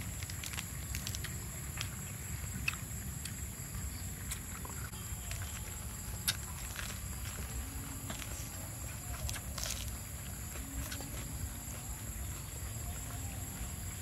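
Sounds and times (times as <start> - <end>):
lettuce leaves crinkling: 0.0 - 3.4, 4.2 - 13.9
steady high whine: 3.4 - 14.0.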